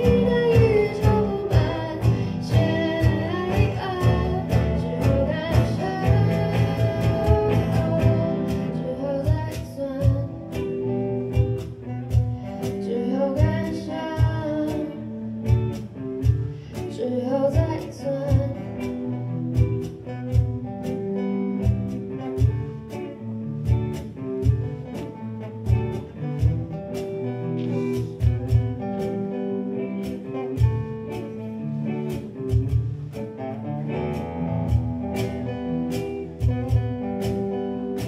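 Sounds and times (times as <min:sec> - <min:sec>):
acoustic guitars: 0:00.0 - 0:38.0
bass: 0:00.0 - 0:38.0
electric guitar lead: 0:00.0 - 0:38.0
steady beat: 0:18.4 - 0:38.0.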